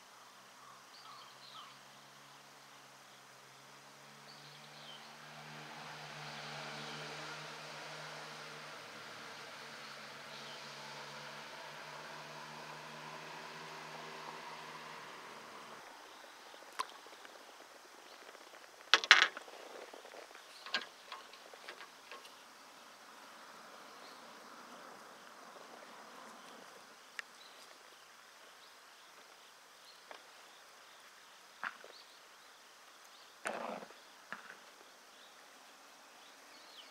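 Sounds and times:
sharp clicks and knocks: 19.0 - 19.4.

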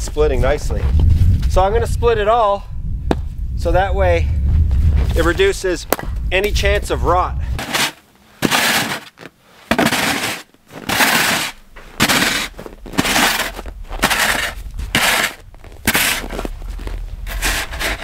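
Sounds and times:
snow shovel scraping over snow: 7.6 - 18.0.

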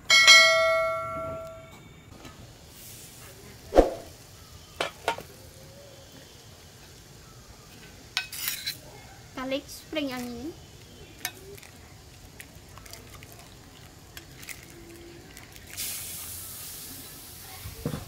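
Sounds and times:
faint steady background noise: 0.0 - 18.0
bell-like ding: 0.1 - 1.7.

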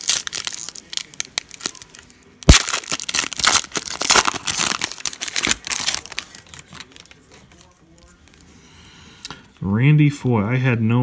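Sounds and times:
wrapper tearing and crinkling: 0.0 - 7.7.

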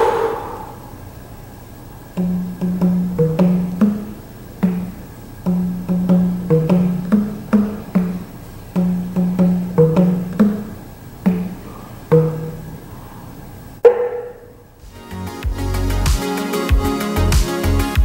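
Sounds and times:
plucked percussive background music: 2.2 - 12.8.

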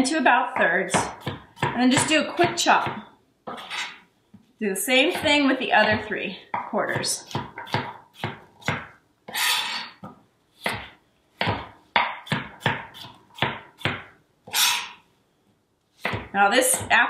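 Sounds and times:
knife chopping on cutting board: 0.6 - 4.0, 5.0 - 9.0, 10.6 - 14.2, 16.0 - 16.9
knife scraping cutting board: 3.5 - 4.1, 7.2 - 10.0, 14.5 - 15.0.

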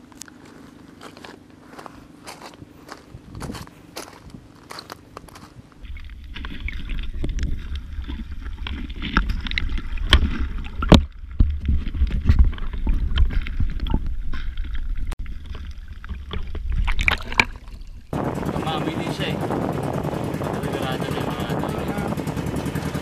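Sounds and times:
footsteps crunching on coral rubble: 0.0 - 14.1
underwater low rumble: 5.2 - 23.0
underwater clicks and crackles: 5.8 - 18.1.

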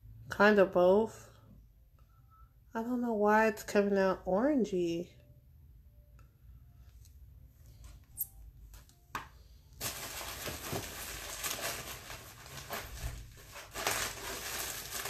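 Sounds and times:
rustling handling noise: 7.7 - 15.0.

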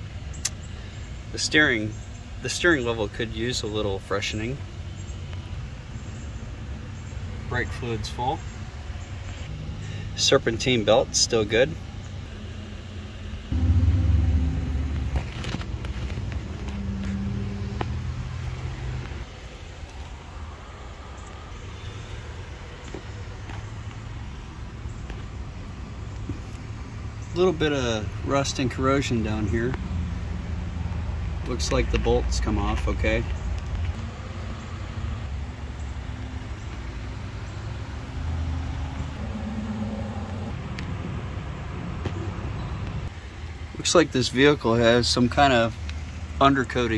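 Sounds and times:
low vehicle rumble: 4.6 - 43.6
faint hum: 11.7 - 18.4.

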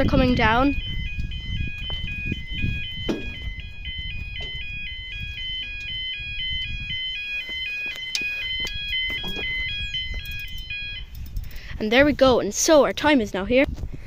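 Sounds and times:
level crossing alarm warbling: 0.0 - 11.2.

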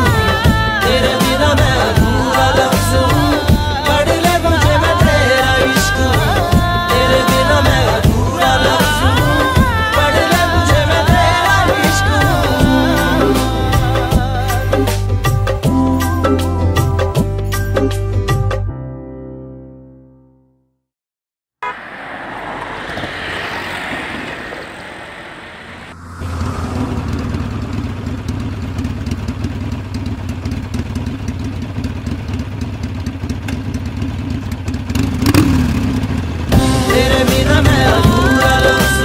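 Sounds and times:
music: 0.0 - 20.8, 36.5 - 39.0
traffic noise: 21.6 - 39.0
motorcycle engine running: 24.8 - 39.0.

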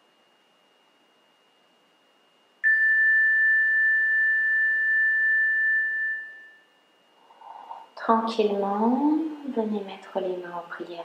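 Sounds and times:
high pure chime tone: 2.6 - 6.8.

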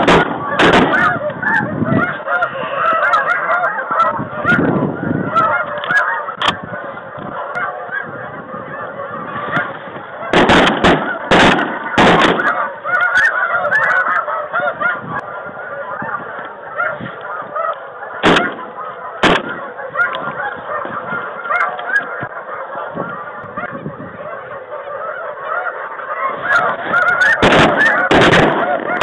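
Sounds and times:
shotgun shots: 0.0 - 1.0, 10.3 - 12.5, 18.2 - 18.6, 19.2 - 19.6, 27.4 - 29.0
geese honking: 0.0 - 29.0.

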